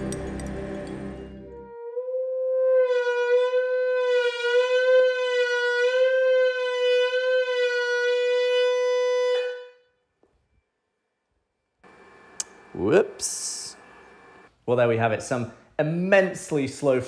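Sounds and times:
loud harsh steady tone: 11.8s - 14.5s.

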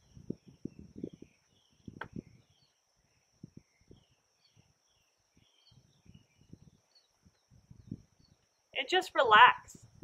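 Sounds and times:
bird-like chirps: 0.0s - 9.5s
soft low rustles and thumps: 0.3s - 2.6s.

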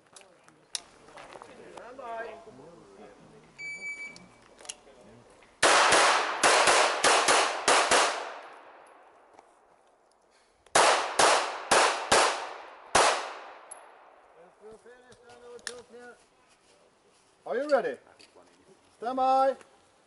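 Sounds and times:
pistol shots echoing: 5.6s - 9.1s, 10.7s - 14.1s.

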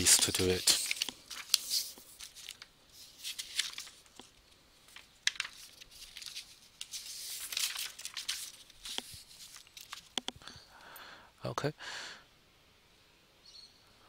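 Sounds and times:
rustling and crinkling: 0.0s - 10.4s.

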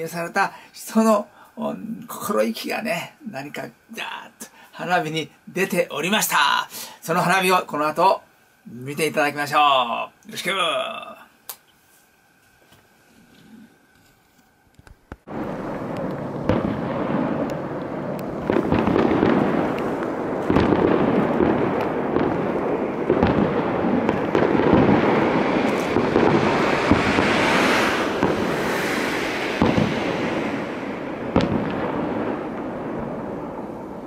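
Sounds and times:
firework crackling: 2.0s - 11.6s, 14.7s - 34.0s
distant firework bangs: 15.3s - 34.0s
rumbling wash: 15.3s - 34.0s.

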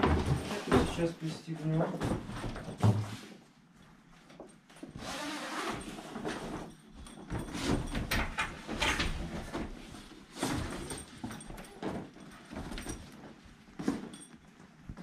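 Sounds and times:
fabric rustling and scraping: 4.8s - 15.0s.

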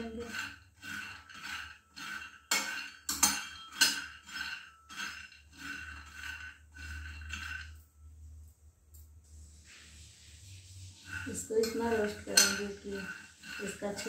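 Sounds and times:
nuts rattling in a pan: 0.0s - 7.6s, 11.1s - 14.0s
metal spatula scraping a pan: 0.0s - 8.1s, 9.4s - 14.0s.

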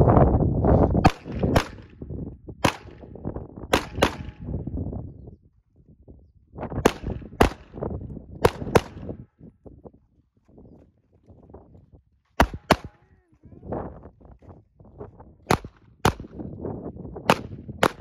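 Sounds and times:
handgun shots: 1.0s - 1.9s, 2.6s - 3.1s, 3.7s - 4.5s, 6.8s - 7.8s, 8.4s - 9.1s, 12.4s - 13.0s, 15.5s - 16.4s, 17.3s - 18.0s.

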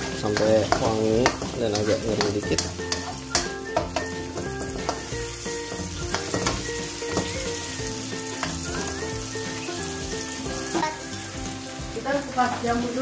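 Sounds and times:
spice paste sizzling in hot oil: 0.0s - 13.0s
spatula clicking against pan: 0.2s - 4.1s, 6.0s - 7.4s.

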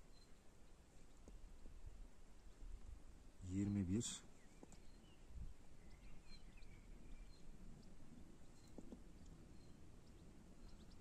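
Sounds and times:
faint bird chirps: 0.0s - 1.3s, 3.4s - 11.0s.

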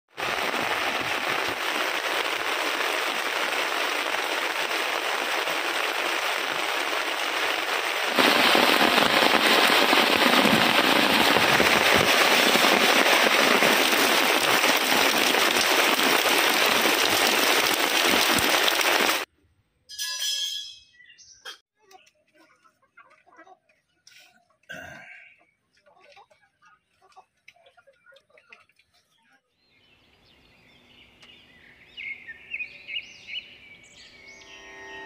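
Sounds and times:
heavy rain falling: 0.1s - 19.3s.

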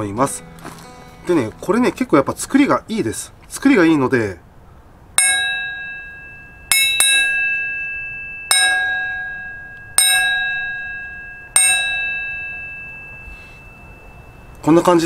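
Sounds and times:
iron pan struck ringing: 5.2s - 14.7s.

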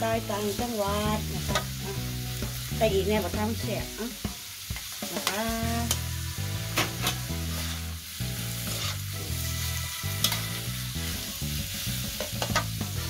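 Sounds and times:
food sizzling: 0.0s - 13.0s
metal spatula scraping wok: 4.8s - 13.0s
spatula clacking on pan: 12.1s - 12.8s.

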